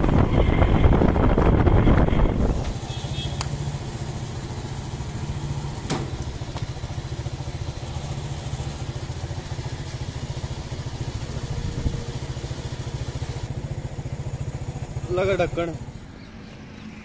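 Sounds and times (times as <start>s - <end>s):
engine idling: 2.8s - 16.3s.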